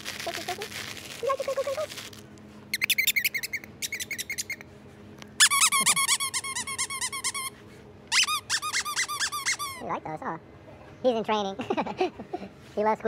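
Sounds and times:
dog toy squeaking: 0:02.8 - 0:04.6, 0:05.4 - 0:09.8.

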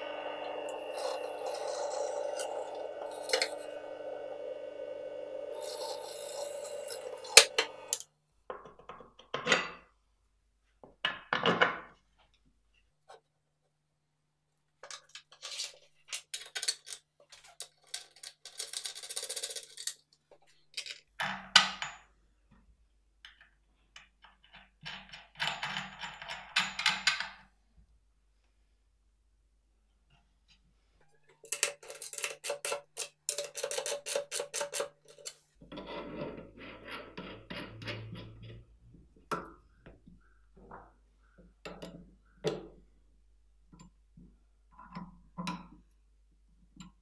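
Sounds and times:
drill press drilling plywood: 0:00.0 - 0:08.0
knocks and scrapes: 0:00.0 - 0:08.0, 0:31.5 - 0:41.0.

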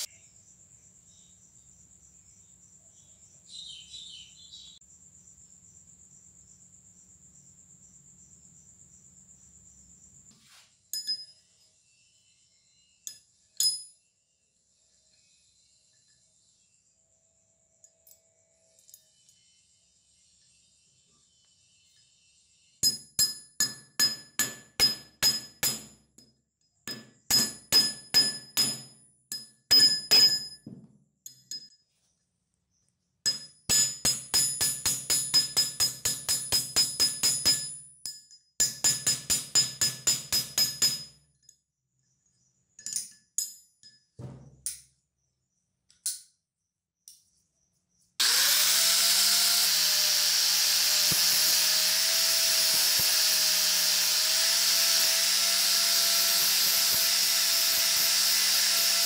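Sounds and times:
hammer striking metal: 0:22.8 - 0:25.9, 0:26.9 - 0:30.7, 0:33.3 - 0:41.1
angle grinder grinding: 0:48.2 - 0:59.0.

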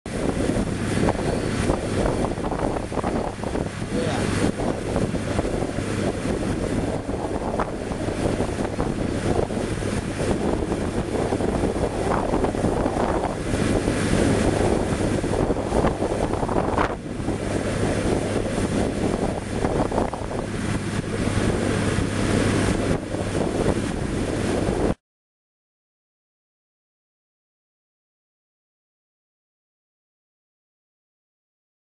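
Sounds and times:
wind buffeting microphone: 0:00.1 - 0:25.0.

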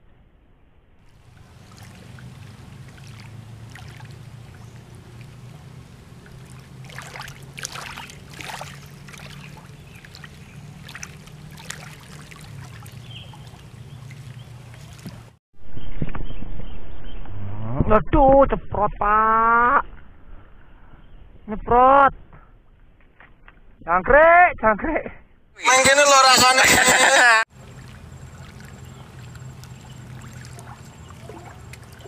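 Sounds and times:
low steady rumble: 0:00.0 - 0:23.1
crackling splashes: 0:01.0 - 0:15.4, 0:27.5 - 0:32.0
water lapping against camera: 0:01.2 - 0:15.4, 0:25.6 - 0:32.0.

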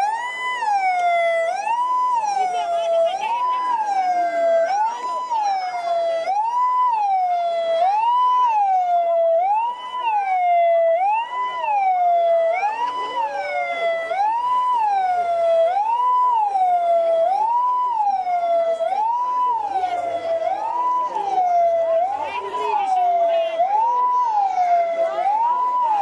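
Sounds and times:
siren wailing: 0:00.0 - 0:26.0.

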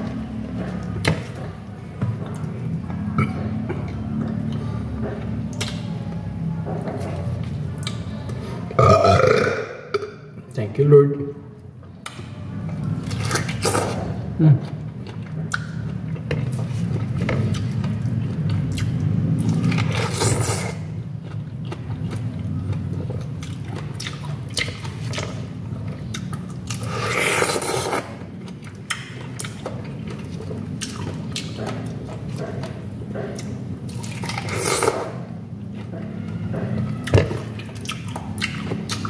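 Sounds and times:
chewing juicy pineapple: 0:00.0 - 0:09.3, 0:11.6 - 0:39.0.

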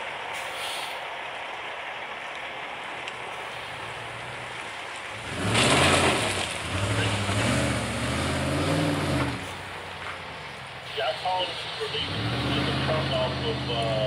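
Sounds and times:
low truck rumble: 0:00.0 - 0:14.0
pickup truck accelerating: 0:03.0 - 0:14.0.

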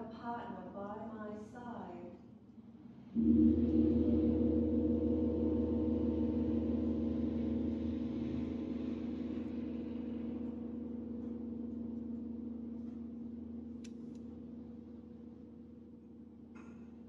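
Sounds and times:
large gong ringing: 0:03.2 - 0:16.5.

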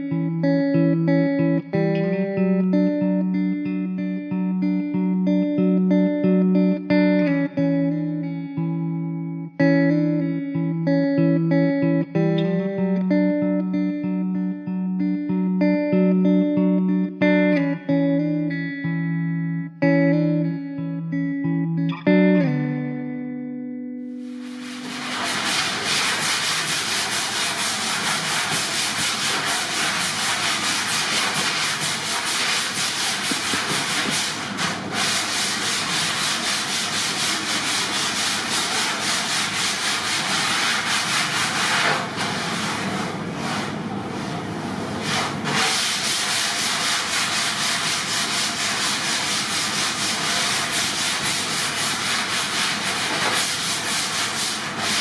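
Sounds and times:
sanding block rasping on foam: 0:24.2 - 0:43.7, 0:45.0 - 0:55.0.

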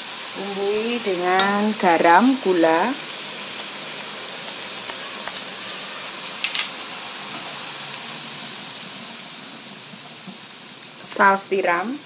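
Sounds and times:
vegetables sizzling in a wok: 0:00.0 - 0:12.0.

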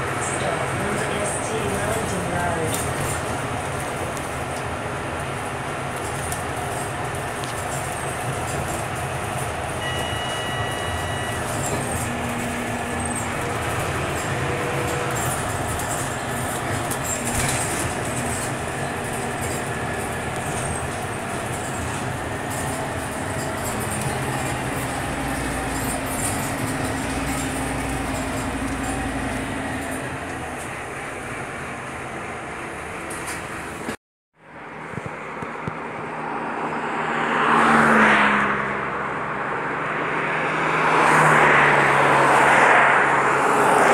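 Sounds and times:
bus diesel engine running: 0:00.0 - 0:34.6
tyre and road noise: 0:00.0 - 0:43.9
high two-tone beep: 0:09.8 - 0:11.5.

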